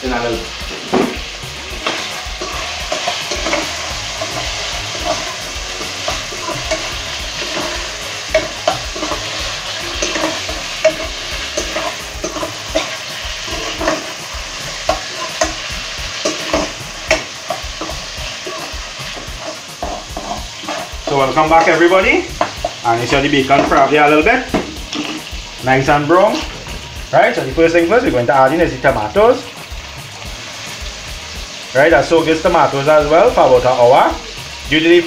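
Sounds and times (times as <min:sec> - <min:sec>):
bacon sizzling in a frying pan: 0:00.0 - 0:35.0
spoon scraping a pan: 0:00.6 - 0:25.6.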